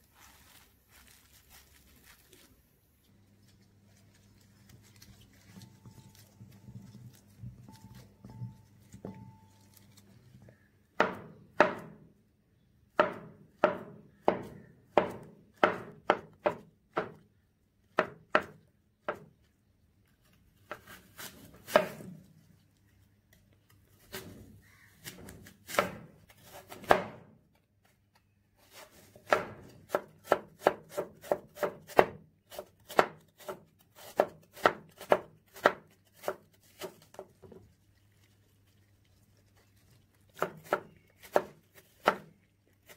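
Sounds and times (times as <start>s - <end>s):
knife chopping on wooden board: 11.0s - 12.1s, 13.0s - 17.2s, 17.9s - 19.3s, 20.7s - 22.2s, 25.0s - 27.3s, 29.2s - 37.2s, 40.4s - 42.9s.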